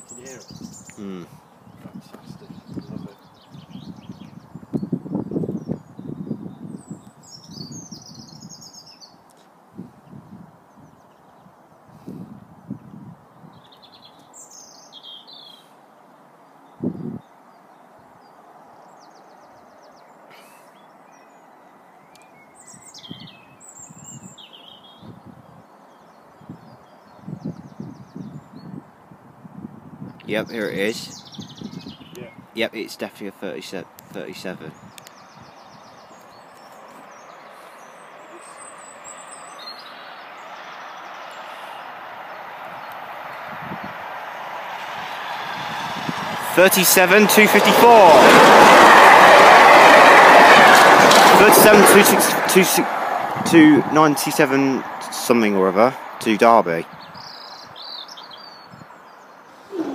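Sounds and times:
birds chirping: 0:00.0 - 0:29.0, 0:30.0 - 0:59.9
diesel locomotive approaching: 0:40.0 - 0:56.3.

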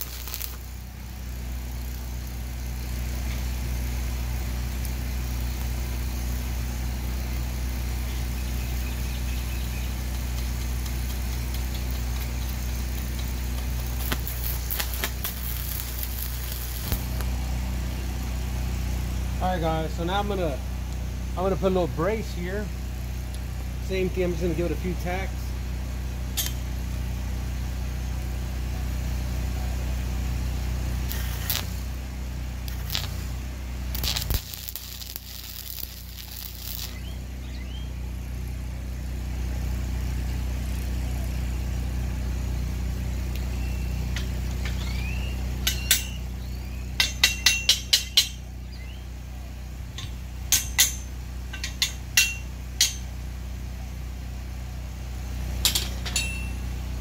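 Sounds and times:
welding arc crackling: 0:00.0 - 0:25.4, 0:30.8 - 0:37.7, 0:49.9 - 0:53.1
low engine hum: 0:00.0 - 0:57.0
hammer tapping on steel: 0:47.0 - 0:48.4, 0:50.0 - 0:53.0.

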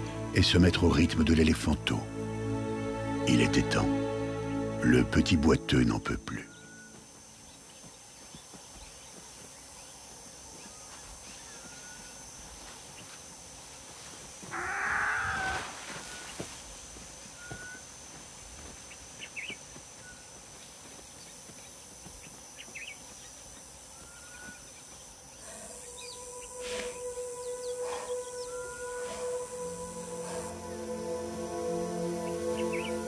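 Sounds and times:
steady music tones: 0:00.0 - 0:09.0, 0:25.6 - 0:33.0
birds chirping: 0:00.0 - 0:33.0
loud harsh bird call: 0:14.5 - 0:16.4.

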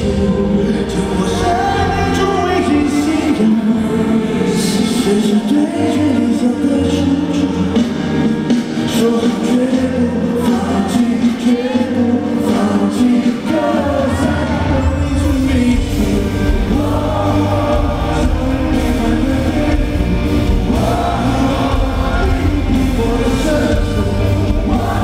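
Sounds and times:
band backing: 0:00.0 - 0:25.0
man singing into microphone: 0:00.0 - 0:25.0
heavy bass: 0:14.2 - 0:25.0.

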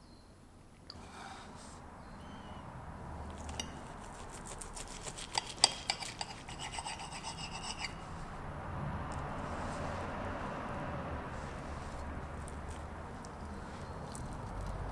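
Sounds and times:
knife scraping a plate: 0:03.4 - 0:08.2.

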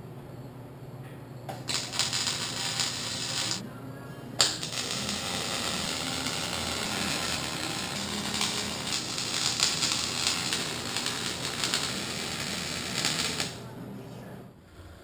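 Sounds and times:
mig welding: 0:01.6 - 0:03.6, 0:04.4 - 0:13.6.

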